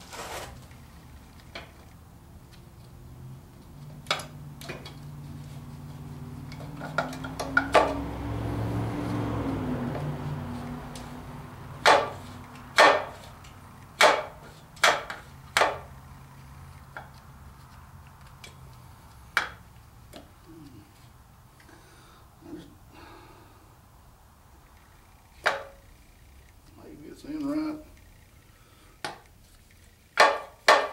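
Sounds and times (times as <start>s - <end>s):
sharp metallic knocks and clicks: 6.4s - 8.2s, 11.8s - 16.0s, 30.0s - 30.9s.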